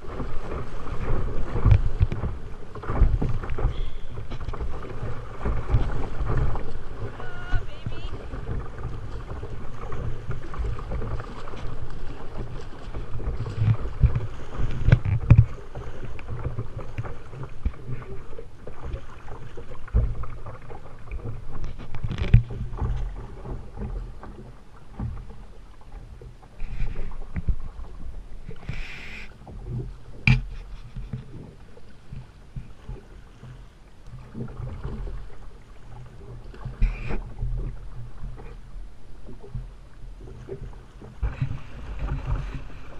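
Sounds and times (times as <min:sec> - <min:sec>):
river water rushing: 0:03.5 - 0:14.7.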